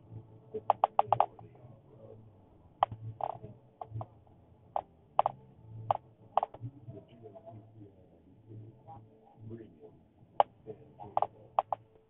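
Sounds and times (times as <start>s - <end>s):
faint low hum: 0.0s - 12.0s
sharp clicks and taps: 0.6s - 1.5s, 2.8s - 4.2s, 4.8s - 6.7s, 10.4s - 12.0s.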